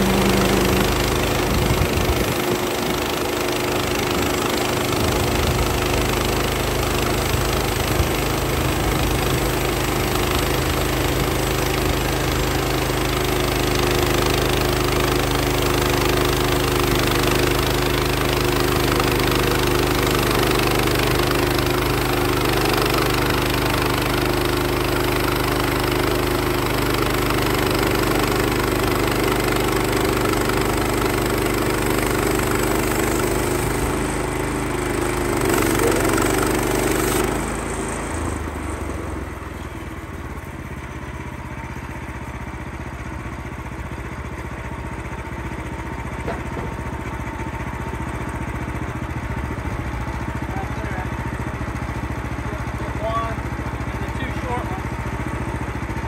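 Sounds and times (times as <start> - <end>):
band saw cutting log: 0.0 - 39.9
gas engine running: 0.0 - 56.0.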